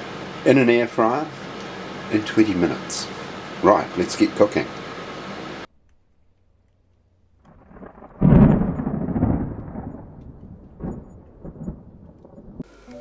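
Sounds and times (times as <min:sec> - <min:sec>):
faint crackles: 0:05.7 - 0:13.0
thunder-like boom: 0:07.5 - 0:12.6.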